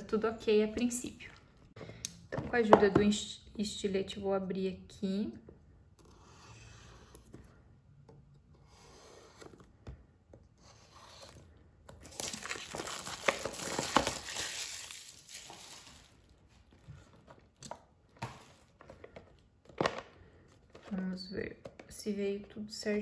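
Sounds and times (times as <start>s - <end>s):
knife slitting plastic wrap: 12.0s - 16.1s
plastic film crinkling: 12.0s - 16.8s.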